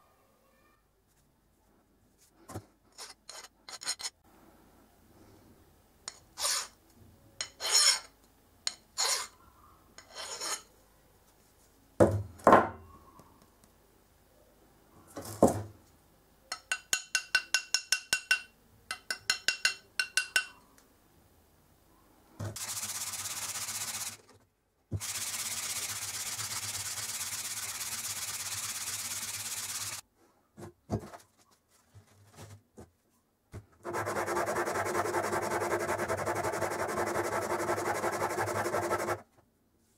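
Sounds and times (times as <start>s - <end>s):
file rasping on steel: 6.1s - 6.7s, 7.4s - 8.1s, 9.0s - 9.4s, 10.0s - 10.7s, 33.8s - 39.2s
rubbing on abrasive: 22.6s - 24.3s, 33.8s - 39.2s
steady hiss: 25.0s - 30.0s.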